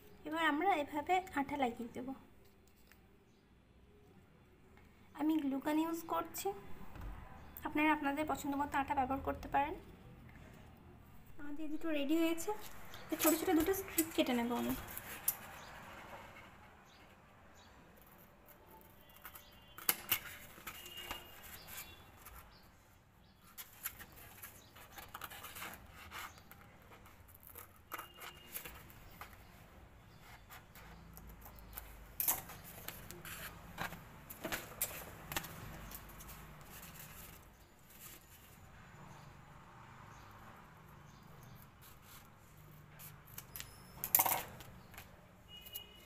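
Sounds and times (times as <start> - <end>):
paper rustling: 12.6 - 16.6, 18.8 - 22.5, 23.4 - 29.6, 30.2 - 38.6
scissors snipping paper: 12.7 - 15.7, 18.0 - 22.4, 23.5 - 29.4.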